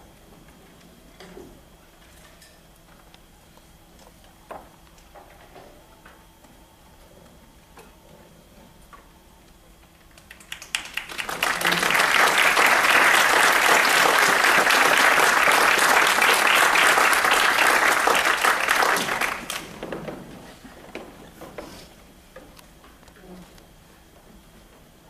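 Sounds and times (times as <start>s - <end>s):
audience applauding: 10.2s - 19.8s.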